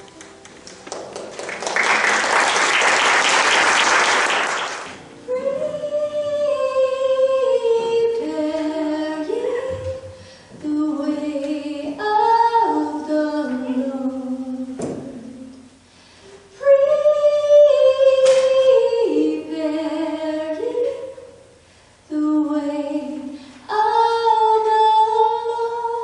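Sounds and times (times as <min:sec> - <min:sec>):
congregation applauding: 0:00.0 - 0:05.0.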